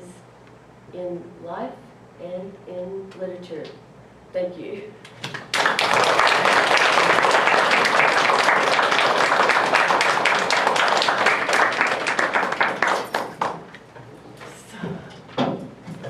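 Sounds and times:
students applauding: 5.2 - 13.8.

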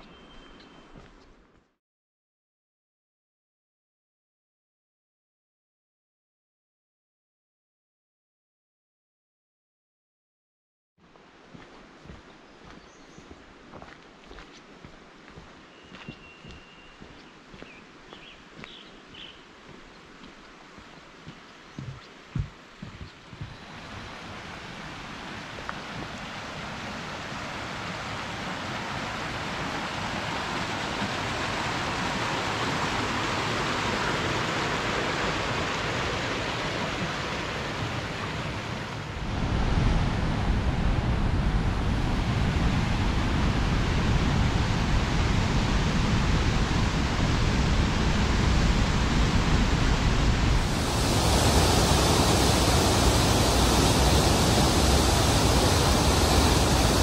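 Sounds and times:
mountain creek rushing: 11.1 - 41.2, 41.8 - 57.0
creek cascading over rocks: 19.5 - 39.2, 50.6 - 57.0.

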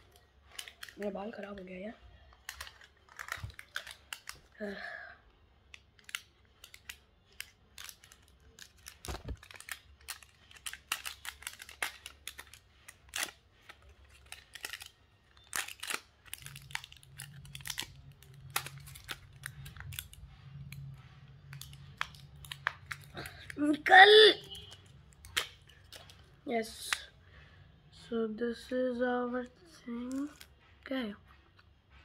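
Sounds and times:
wrapper tearing and crinkling: 0.1 - 1.6, 2.3 - 4.8, 5.7 - 23.6, 24.5 - 26.3, 30.0 - 30.7.

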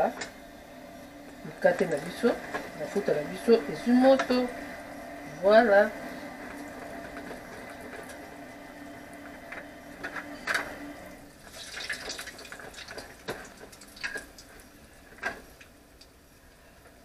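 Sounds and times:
dough frying in hot oil: 11.2 - 17.0
oil crackling and popping: 11.4 - 16.2.

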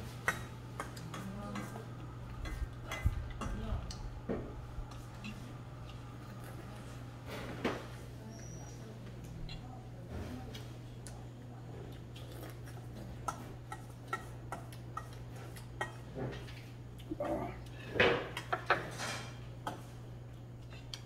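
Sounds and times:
utensils clinking on metal bowl: 0.2 - 3.6.

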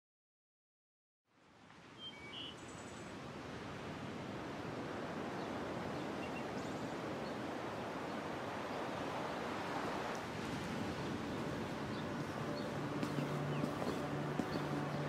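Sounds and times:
ambient rushing noise: 10.3 - 15.0.

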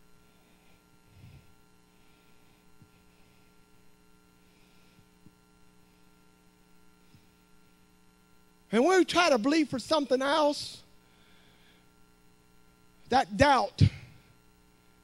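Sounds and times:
steady electrical hum: 0.0 - 15.0.

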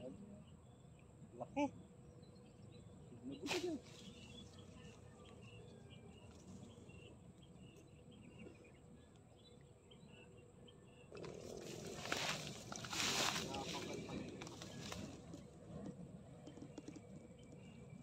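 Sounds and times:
insects and birds chirping: 0.0 - 18.0.

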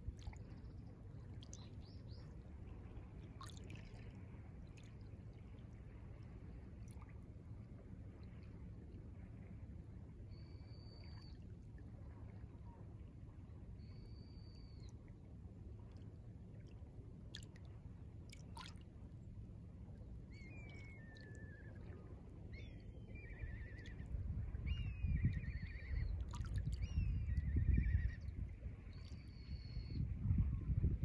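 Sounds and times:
small waves lapping at shore: 0.0 - 10.0, 14.8 - 24.0.

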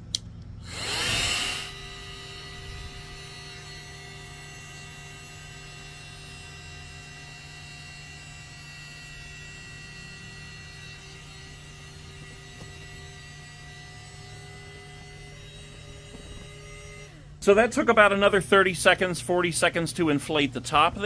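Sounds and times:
electric air pump running: 0.6 - 21.0.

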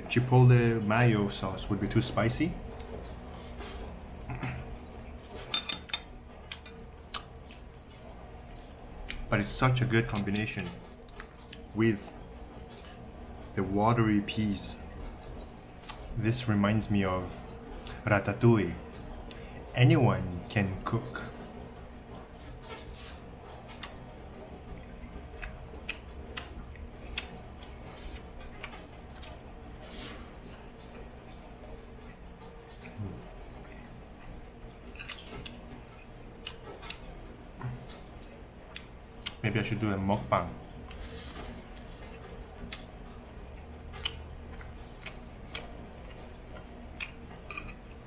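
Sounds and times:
low room hum: 0.0 - 48.0
person chewing food: 6.4 - 9.3, 24.7 - 31.1, 32.0 - 39.4, 40.9 - 48.0.

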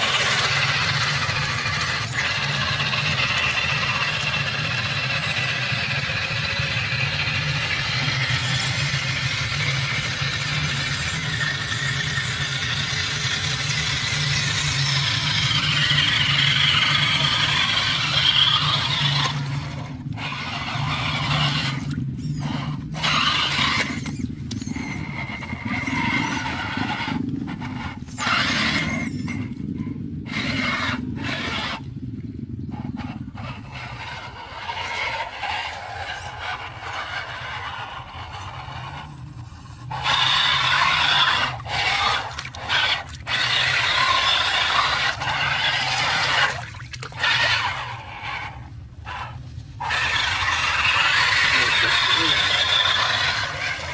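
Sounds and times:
rc car motor whining: 0.0 - 31.8, 32.8 - 46.6, 47.2 - 53.9
wheels splashing in muddy water: 39.9 - 53.9.

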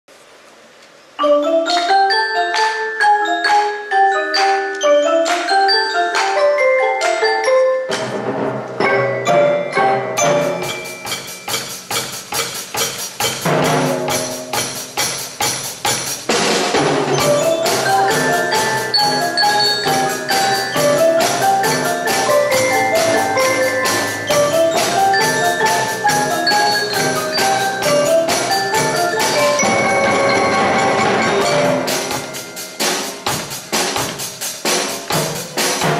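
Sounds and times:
marimba melody: 1.2 - 35.9
drum and block beat: 1.6 - 35.9.

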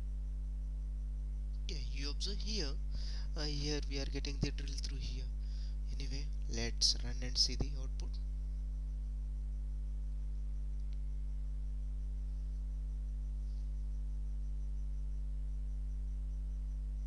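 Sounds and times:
low electrical mains hum: 0.0 - 17.0
faint click: 10.8 - 11.1.

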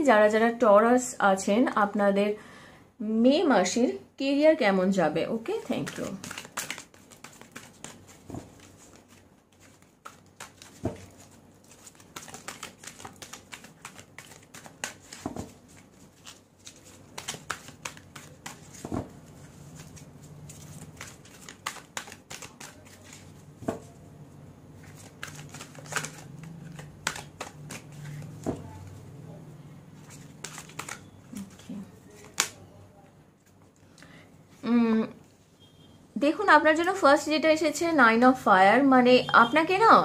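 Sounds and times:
cards being shuffled: 5.6 - 24.0, 24.8 - 29.0, 30.0 - 32.6.

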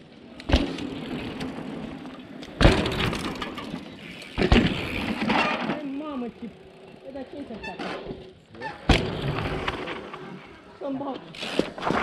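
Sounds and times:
heavy bike landing thumps: 0.5 - 1.0, 2.5 - 3.8, 4.4 - 5.8, 8.8 - 10.1
bike frame and chain rattling: 0.7 - 9.8.

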